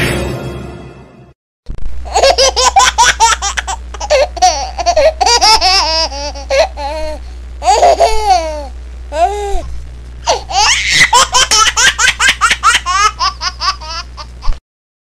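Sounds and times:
steady low hum: 1.7s - 14.6s
high-pitched cartoon laughter: 2.1s - 6.8s, 7.6s - 8.7s, 10.3s - 14.6s.

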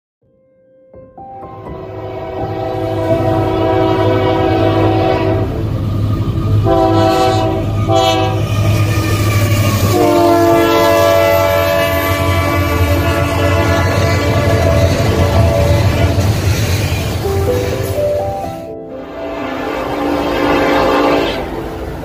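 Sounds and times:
locomotive horn blasts: 1.7s - 5.7s, 6.6s - 16.3s, 19.0s - 21.9s.

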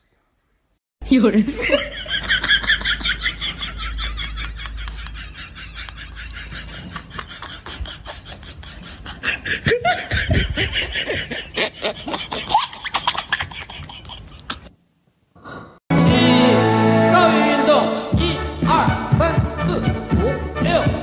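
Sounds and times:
person laughing: 1.5s - 14.7s
music: 15.9s - 21.0s.

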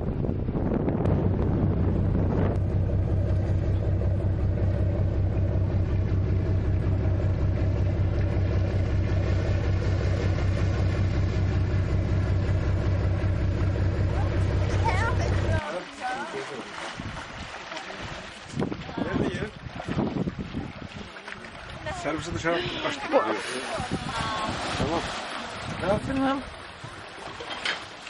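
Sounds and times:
wind buffeting microphone: 0.0s - 11.1s, 16.9s - 22.4s, 23.7s - 27.1s
boat engine running: 0.0s - 28.0s.

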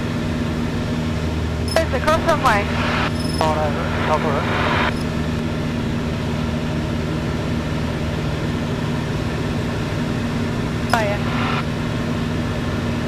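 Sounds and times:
aircraft engine and propeller droning: 0.0s - 13.0s.

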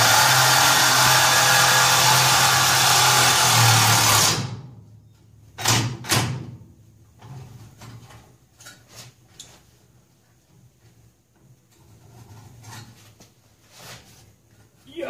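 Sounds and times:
power tool whirring: 0.0s - 4.5s.

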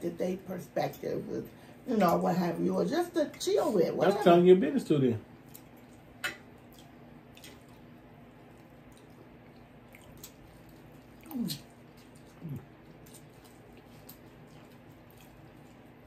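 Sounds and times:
faint chewing and mouth clicks: 5.4s - 16.0s.

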